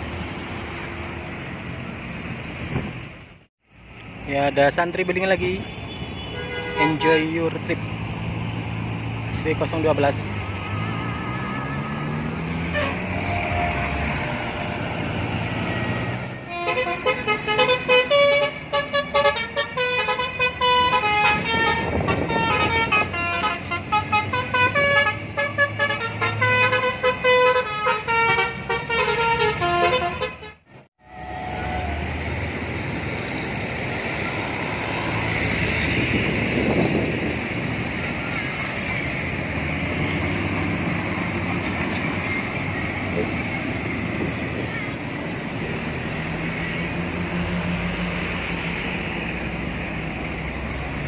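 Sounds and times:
bus engines: 0.0s - 51.0s
traffic: 0.0s - 51.0s
bus horn playing jingly melody: 6.2s - 7.2s, 12.7s - 14.6s, 16.4s - 32.0s.

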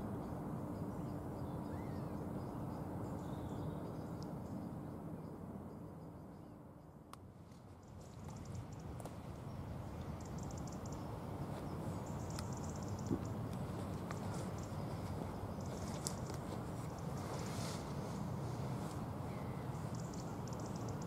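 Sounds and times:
small birds twittering: 0.2s - 6.6s, 7.8s - 21.0s
low outdoor rumble: 7.0s - 21.0s.

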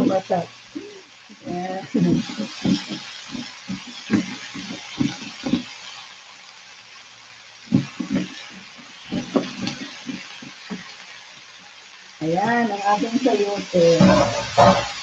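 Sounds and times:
vegetables sizzling in a pan: 0.0s - 15.0s
spatula knocking and scraping: 2.2s - 5.8s, 7.7s - 10.9s.

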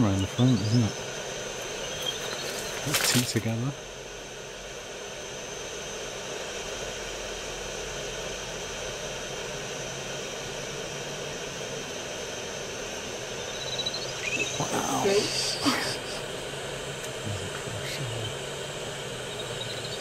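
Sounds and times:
faint rising chirps: 0.0s - 3.0s, 13.3s - 16.5s, 17.4s - 20.0s
steady hiss: 14.0s - 20.0s.

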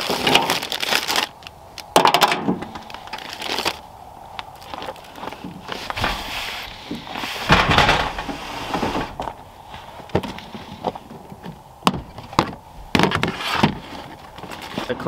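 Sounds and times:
plastic bin scraping: 5.4s - 9.4s.

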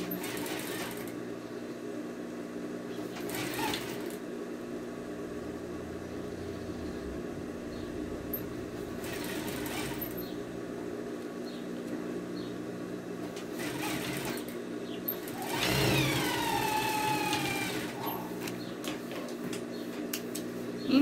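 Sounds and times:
electric sewing machine stitching: 0.0s - 1.1s, 3.0s - 4.2s, 9.0s - 10.2s, 13.4s - 14.6s, 15.2s - 18.5s.

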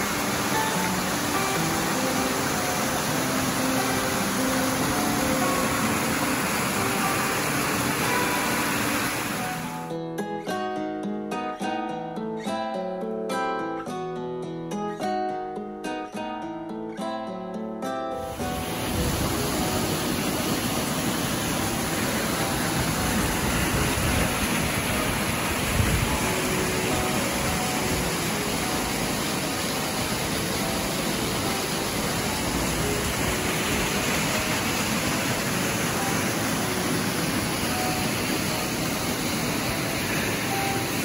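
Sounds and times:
small waterfall splashing: 0.0s - 9.9s, 18.2s - 41.0s.

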